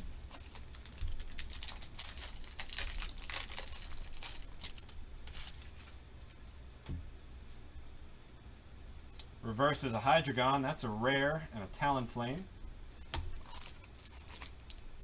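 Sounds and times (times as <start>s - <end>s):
foil wrapper crinkling and tearing: 0.0s - 6.0s, 13.4s - 15.0s.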